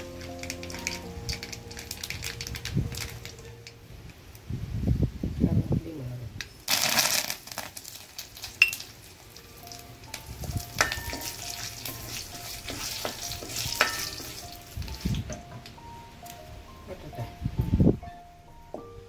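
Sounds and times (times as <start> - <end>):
sizzling in hot oil: 0.0 - 3.4, 6.6 - 15.4.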